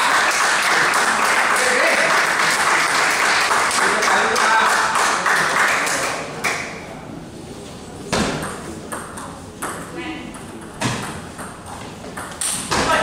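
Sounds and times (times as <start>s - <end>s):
spectators clapping: 0.0s - 6.8s
table tennis ball hitting bat: 8.1s - 13.0s.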